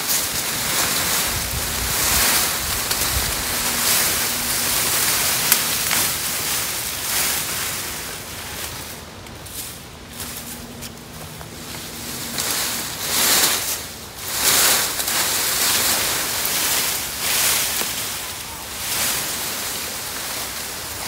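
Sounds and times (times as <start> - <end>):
branches dragged through brush: 0.0 - 21.0.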